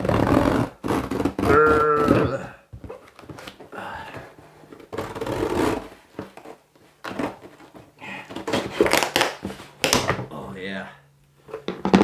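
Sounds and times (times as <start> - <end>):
cardboard box being cut and torn: 0.0 - 2.4, 4.9 - 5.9.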